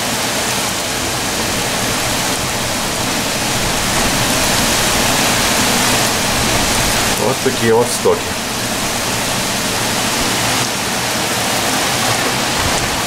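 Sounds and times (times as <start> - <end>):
heavy rain: 0.0 - 13.0
water pouring off roof: 0.0 - 13.0.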